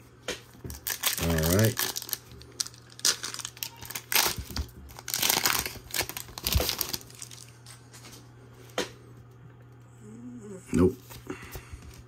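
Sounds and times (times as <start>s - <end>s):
foil wrapper crinkling: 0.6s - 8.1s.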